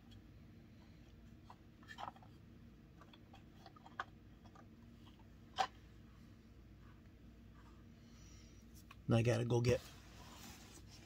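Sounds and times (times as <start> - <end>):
plastic toy clicking and knocking: 3.0 - 4.7.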